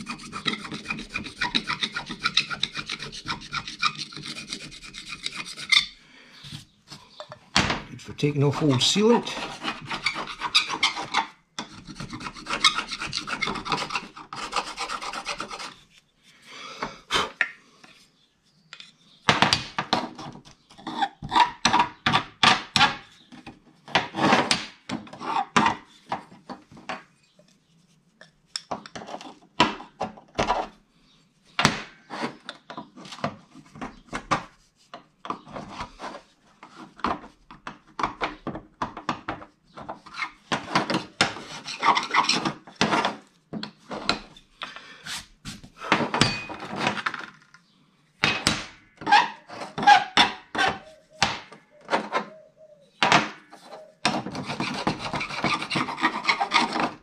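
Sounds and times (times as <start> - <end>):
scraper rasping on metal: 0.0 - 6.0, 8.6 - 15.9, 41.2 - 42.6, 53.6 - 57.0.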